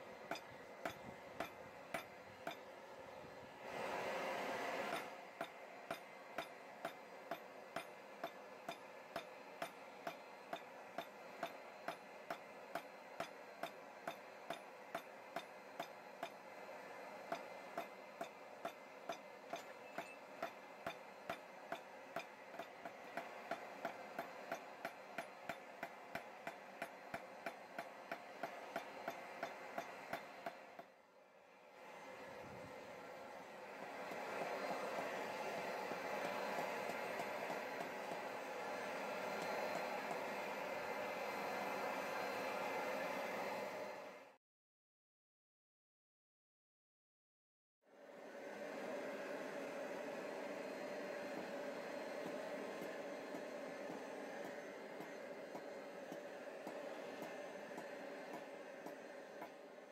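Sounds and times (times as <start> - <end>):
steady background noise: 0.0 - 44.4, 48.0 - 59.9
hammer striking metal on anvil: 0.2 - 2.7, 4.9 - 16.4, 17.3 - 30.9.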